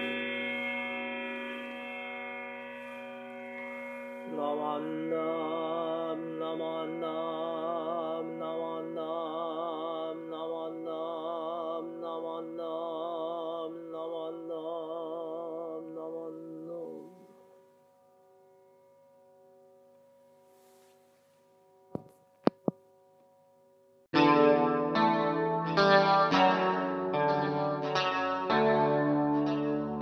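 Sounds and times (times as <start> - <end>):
bowl bell ringing: 0.0 - 4.6
person chanting: 4.2 - 17.4.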